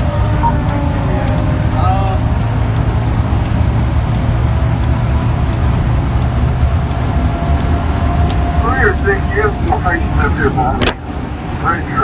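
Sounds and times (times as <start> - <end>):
engine and road noise rumble: 0.0 - 12.0.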